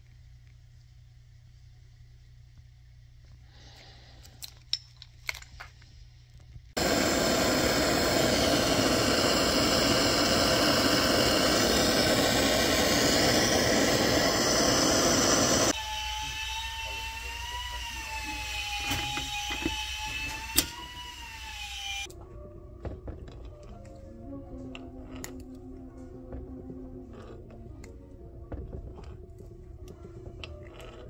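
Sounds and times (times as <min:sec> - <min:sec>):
gas torch hissing: 0:06.8 - 0:22.1.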